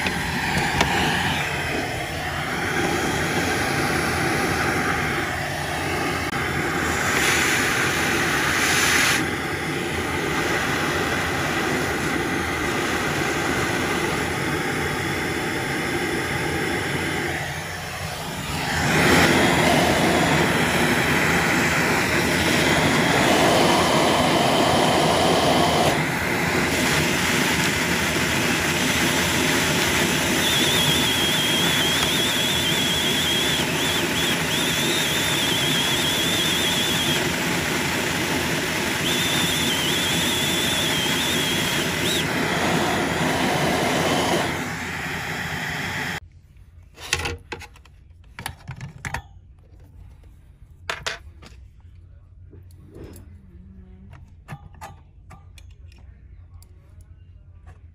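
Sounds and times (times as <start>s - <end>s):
vacuum cleaner running: 0.0s - 46.2s
thin high whistle: 30.1s - 37.3s, 38.9s - 42.4s.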